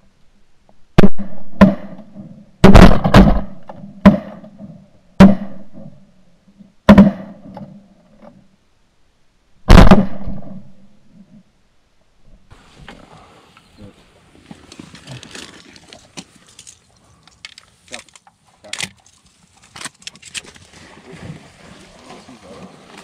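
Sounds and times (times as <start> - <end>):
shotgun blasts: 1.0 - 4.6, 5.2 - 5.9, 6.9 - 7.5, 9.7 - 10.8.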